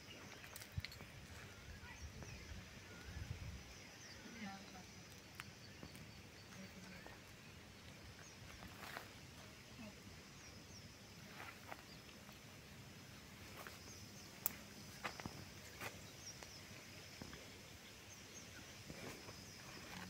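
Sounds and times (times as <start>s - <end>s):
faint bird chirps: 0.0s - 12.4s.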